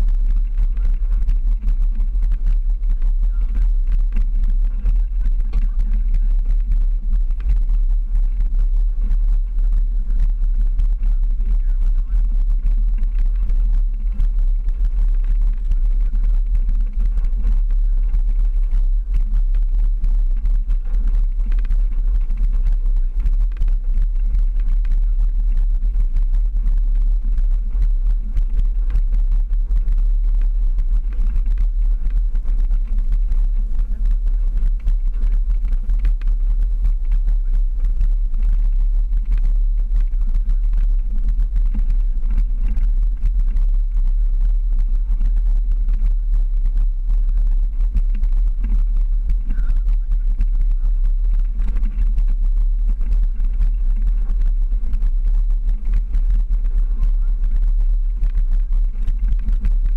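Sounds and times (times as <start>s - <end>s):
vehicle engine rumble: 0.0s - 59.9s.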